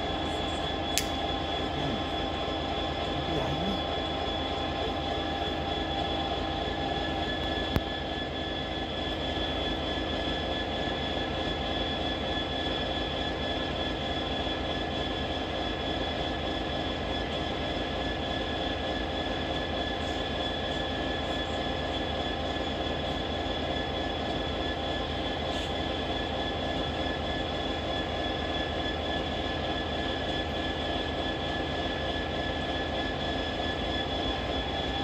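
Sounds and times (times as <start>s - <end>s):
train engine drone: 0.0s - 35.0s
sharp click: 1.0s - 1.2s.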